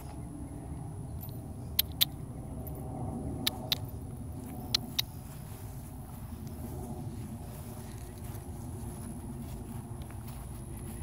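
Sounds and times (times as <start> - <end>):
low rumble: 0.0 - 11.0
sharp clicks in pairs: 1.2 - 2.2, 3.4 - 3.9.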